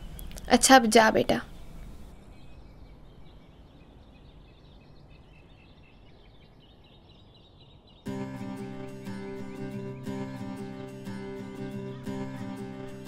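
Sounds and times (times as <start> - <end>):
low hum: 0.0 - 6.6
small birds chirping: 0.0 - 13.0
acoustic guitar music: 8.1 - 13.0.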